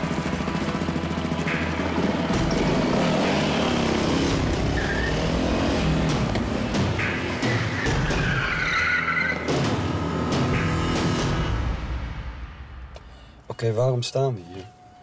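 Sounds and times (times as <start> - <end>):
car engine revving: 1.6 - 11.8
tyre squeal: 4.7 - 5.2, 7.4 - 9.4.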